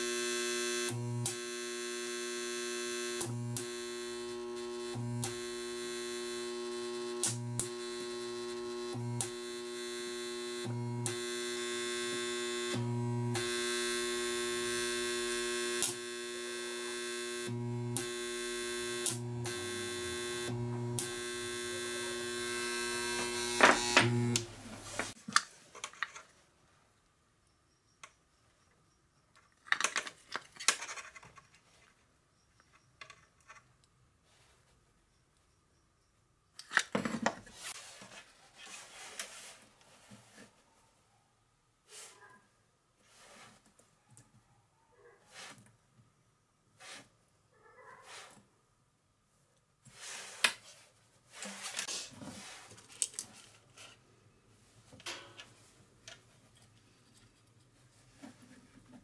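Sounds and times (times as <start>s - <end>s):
spot welder humming: 0.0s - 25.2s
welder buzz and sharp snap: 0.0s - 25.2s.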